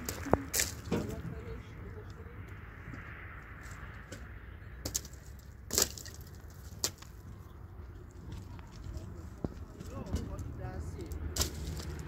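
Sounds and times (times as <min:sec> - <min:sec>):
sharp cracks: 0:04.8 - 0:07.2.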